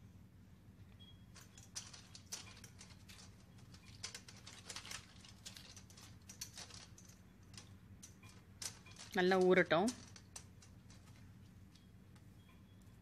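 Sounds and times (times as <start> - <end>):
bamboo sticks clicking on metal plate: 1.4 - 12.6.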